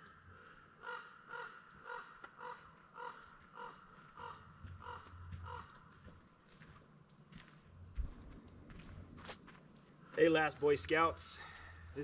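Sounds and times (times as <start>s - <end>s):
crow cawing: 0.0s - 6.2s.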